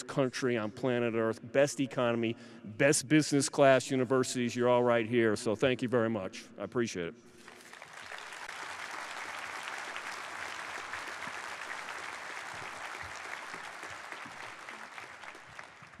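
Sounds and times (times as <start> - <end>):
audience applauding: 7.4 - 16.0.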